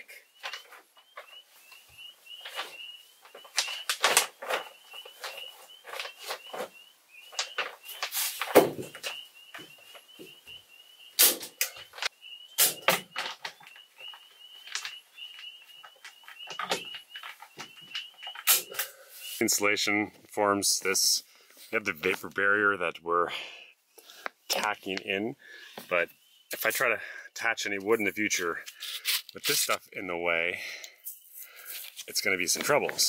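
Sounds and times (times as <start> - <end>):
plastic sheet crinkling: 0.4 - 1.8, 2.4 - 9.2, 12.7 - 18.8, 28.7 - 29.8, 31.5 - 33.0.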